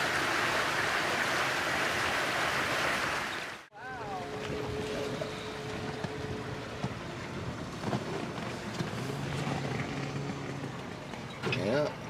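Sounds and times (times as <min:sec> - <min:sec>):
water noise: 0:00.0 - 0:12.0
wind: 0:00.0 - 0:12.0
boat motor running: 0:03.7 - 0:12.0.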